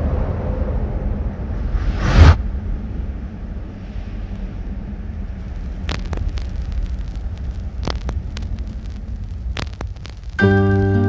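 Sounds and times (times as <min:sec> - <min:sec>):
low rumbling drone: 0:00.0 - 0:10.4
sharp crackles and clicks: 0:05.4 - 0:10.7.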